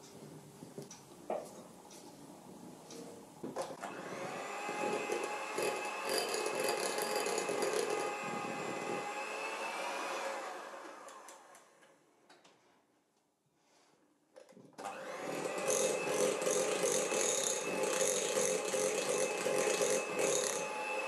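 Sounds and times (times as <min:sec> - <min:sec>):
electric hand mixer whining: 0:03.8 - 0:11.6, 0:14.8 - 0:21.0.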